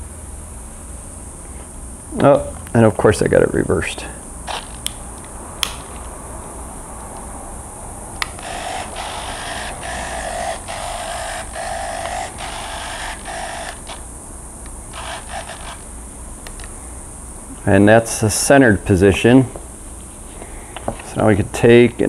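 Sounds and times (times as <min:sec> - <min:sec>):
servos whirring: 0:04.4 - 0:05.0, 0:08.2 - 0:14.1, 0:14.7 - 0:16.6
sharp click: 0:05.6 - 0:05.9.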